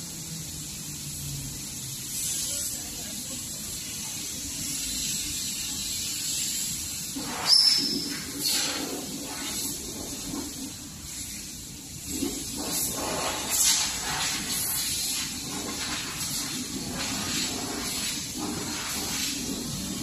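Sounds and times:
laser machine hiss and hum: 0:00.0 - 0:20.0
loud burst with high tone: 0:07.1 - 0:08.8.

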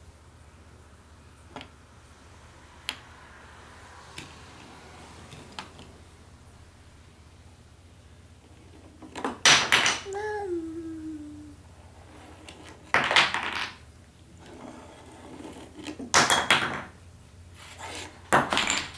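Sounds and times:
toy blocks clattering on wood: 0:18.3 - 0:18.9.

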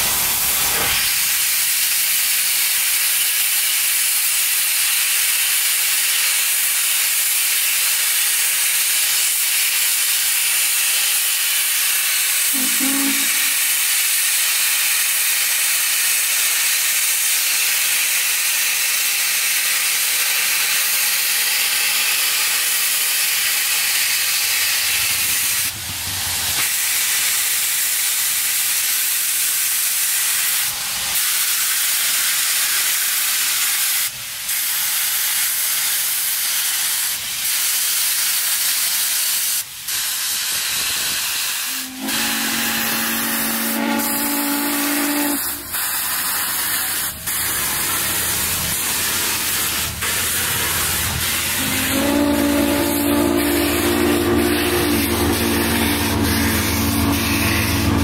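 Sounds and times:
steam locomotive venting steam: 0:00.0 - 0:58.0.

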